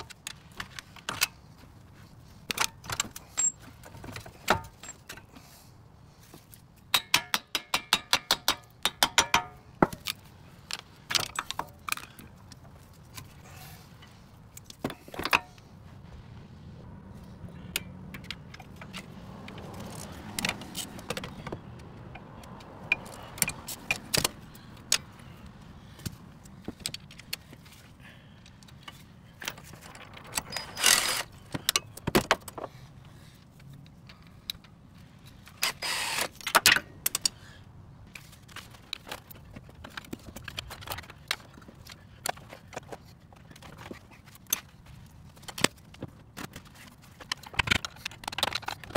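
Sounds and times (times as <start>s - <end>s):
metal tools clinking and clanking: 2.5s - 5.3s, 28.9s - 31.9s.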